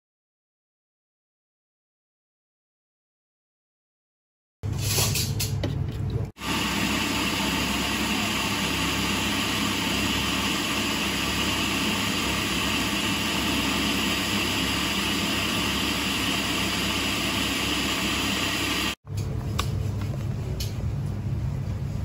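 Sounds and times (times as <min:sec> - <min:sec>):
food processor motor running: 0:06.4 - 0:19.0.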